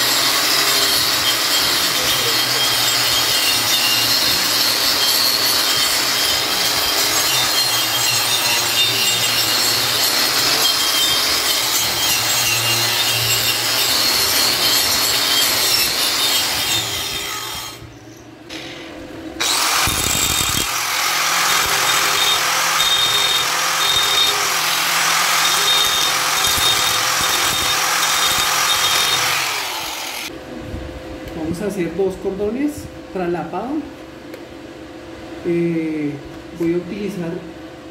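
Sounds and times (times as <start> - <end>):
welding arc crackling: 19.4 - 30.3.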